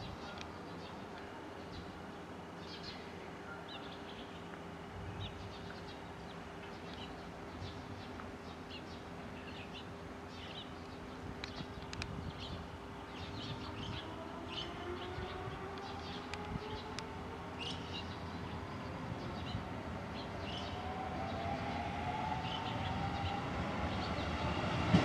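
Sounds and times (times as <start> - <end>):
small birds chirping: 0.0 - 24.7.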